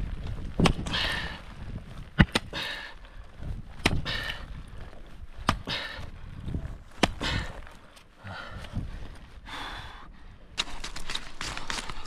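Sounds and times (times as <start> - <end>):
climbing gear striking ice: 10.6 - 12.0.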